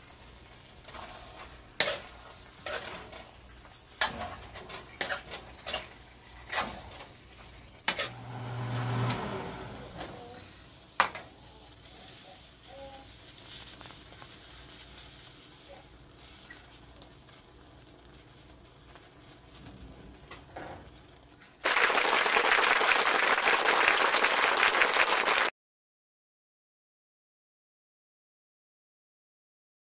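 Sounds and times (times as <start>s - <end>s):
metal spoon stirring in pan: 0.0s - 8.3s, 9.1s - 21.6s
applause: 21.6s - 25.5s.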